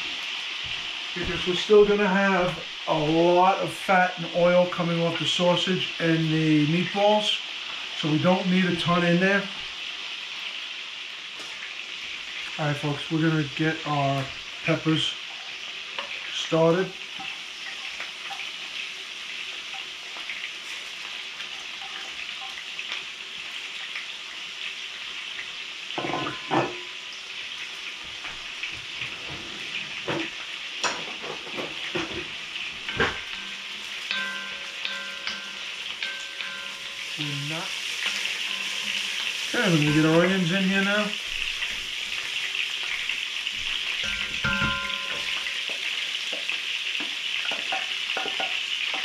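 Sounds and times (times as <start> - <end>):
food frying hiss: 0.0 - 49.0
utensils knocking on pans: 26.0 - 27.0, 29.2 - 42.2, 43.6 - 49.0.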